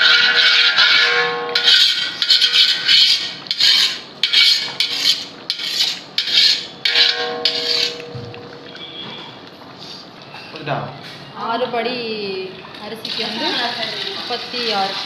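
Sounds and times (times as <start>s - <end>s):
metal ladle scraping a pot: 0.0s - 9.3s.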